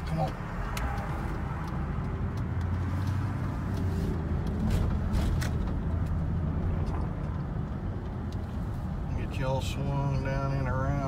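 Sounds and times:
truck engine and road rumble: 0.0s - 11.0s.

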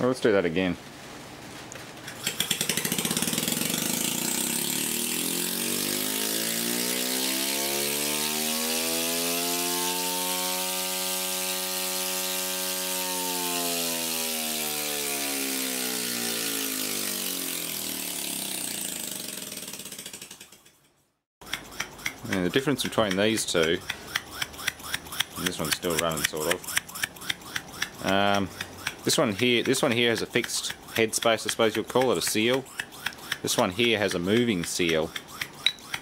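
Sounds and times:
compressor mechanical clatter: 1.8s - 5.2s, 19.4s - 20.9s.

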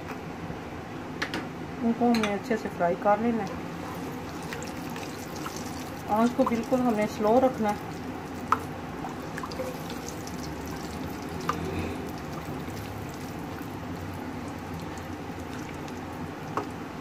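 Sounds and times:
spices sizzling in hot oil: 3.3s - 17.0s.

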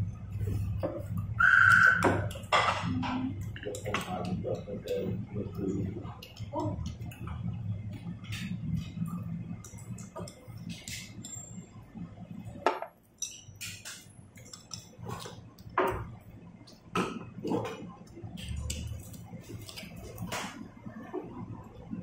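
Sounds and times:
chopsticks clinking on ceramic bowls: 13.2s - 16.0s.

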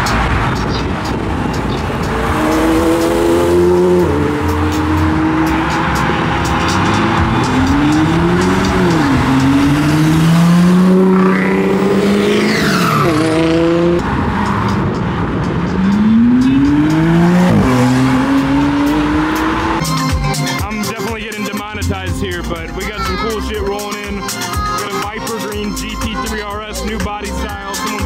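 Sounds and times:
supercar engine accelerating hard: 0.0s - 19.9s.

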